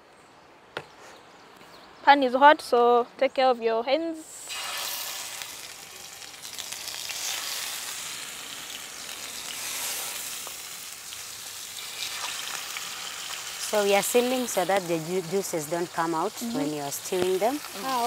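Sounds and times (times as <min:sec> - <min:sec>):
chicken sizzling in hot oil: 0:04.3 - 0:18.0.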